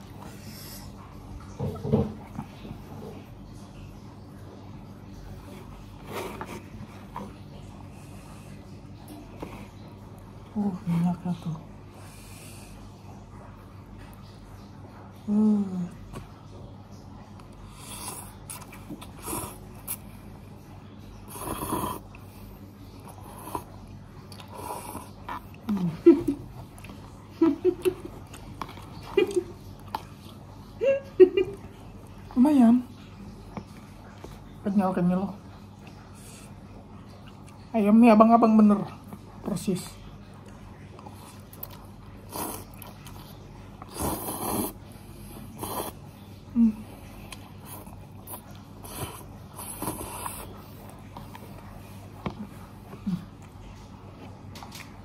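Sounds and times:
noodles being slurped: 17.6s - 20.1s, 41.0s - 46.1s, 47.3s - 53.6s
person slurping noodles: 17.7s - 20.0s, 21.3s - 22.2s, 24.4s - 25.4s, 42.3s - 43.2s, 43.8s - 44.8s, 45.4s - 46.0s, 47.6s - 50.6s.

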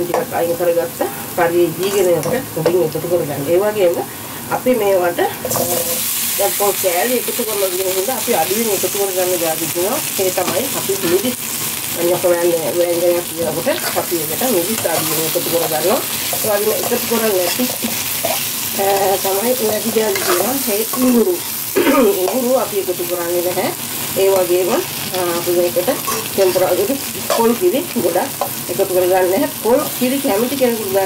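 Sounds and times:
food sizzling in hot oil: 0.0s - 31.0s
spatula scraping a pan: 13.2s - 21.7s, 25.3s - 27.5s.

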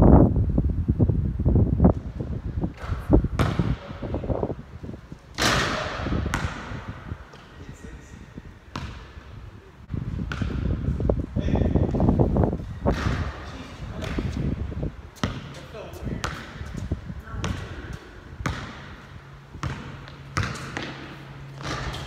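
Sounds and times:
wind rumble on microphone: 0.0s - 19.8s
basketball bouncing on hard court: 2.8s - 4.1s, 5.4s - 7.6s, 8.7s - 9.2s, 10.2s - 10.8s, 12.9s - 14.5s, 15.2s - 22.0s.

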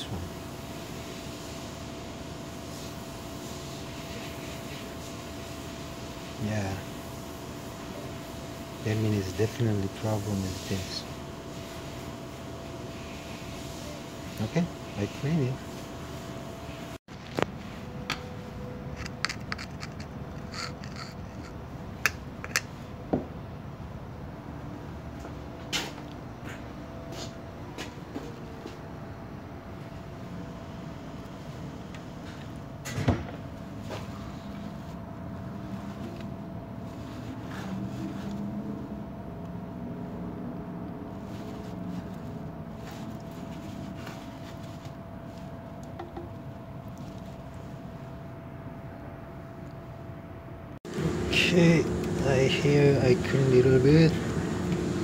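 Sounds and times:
steady low hum: 0.0s - 55.0s
hand wiping oil sludge: 33.7s - 38.9s, 41.1s - 45.7s.

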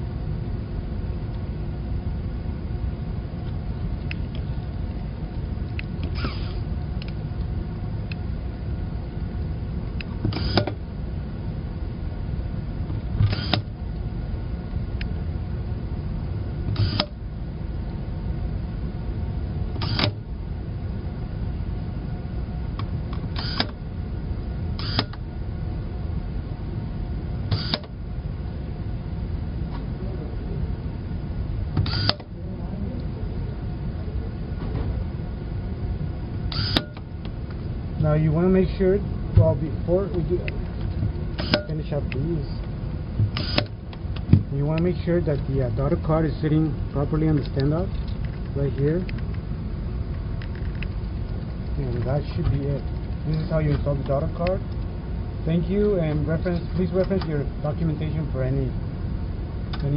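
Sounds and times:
background hum: 0.0s - 59.9s
sharp clicks: 24.8s - 25.2s, 43.3s - 44.3s.

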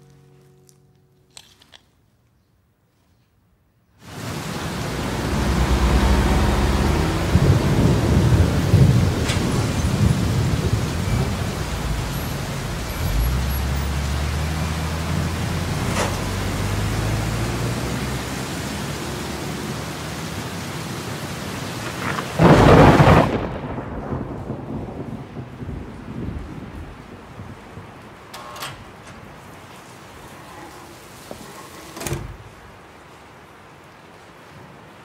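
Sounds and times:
heavy rain: 4.0s - 35.0s
low hum: 4.8s - 16.9s.

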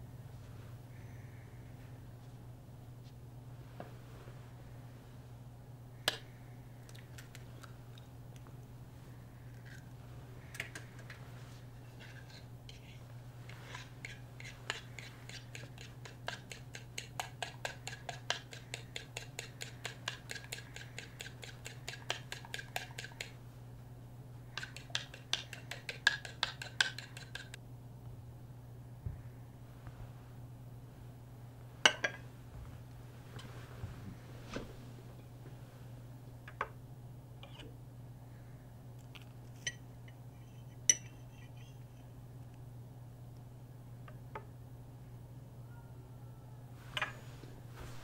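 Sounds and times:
utensil beating against a bowl: 13.7s - 23.4s, 24.5s - 27.6s.

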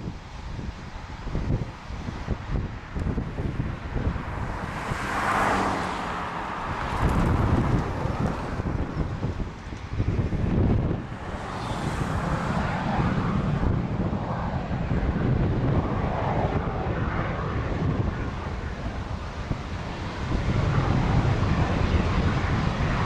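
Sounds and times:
jet engines roaring: 0.0s - 23.0s
wind buffeting microphone: 0.0s - 23.0s.

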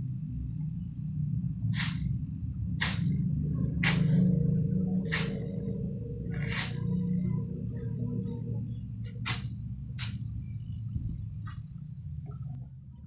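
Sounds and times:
refrigerator compressor humming: 0.0s - 13.0s
short air hisses: 1.7s - 2.1s, 2.8s - 3.1s.

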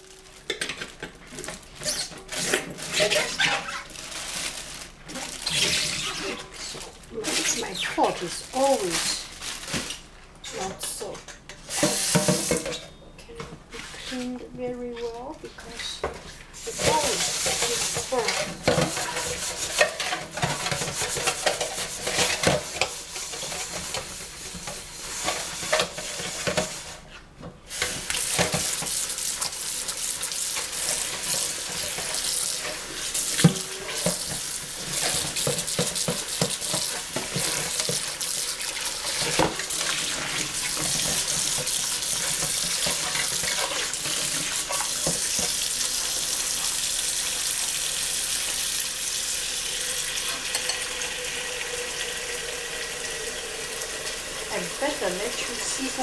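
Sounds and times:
tap water running into sink: 27.7s - 56.0s.

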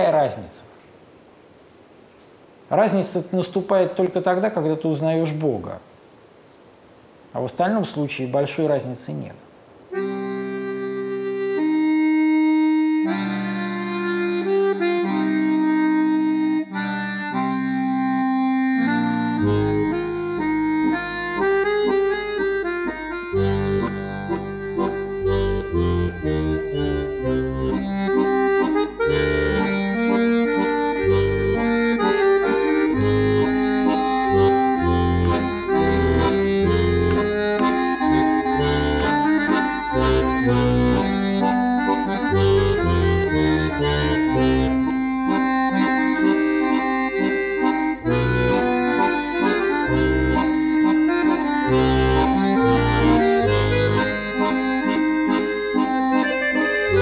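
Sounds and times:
button accordion: 9.9s - 57.0s
bass line: 17.4s - 57.0s.

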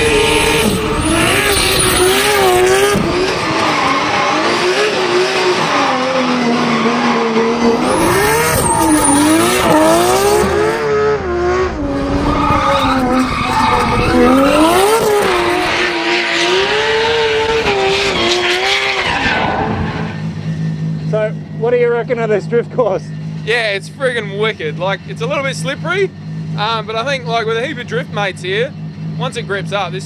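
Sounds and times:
car engine revving hard: 0.0s - 21.5s.

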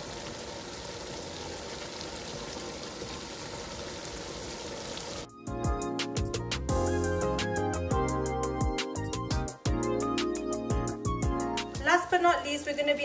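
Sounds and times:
curry sizzling in a pot: 0.0s - 5.3s
background music with plucked notes: 5.3s - 12.2s.

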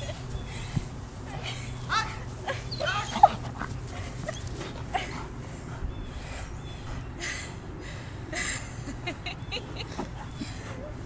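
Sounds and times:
dog whining and yelping: 2.7s - 4.8s.

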